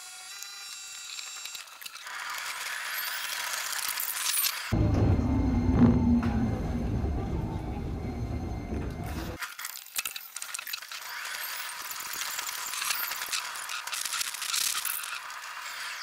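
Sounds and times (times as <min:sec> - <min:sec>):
dense deep background music: 0:04.7 - 0:09.4.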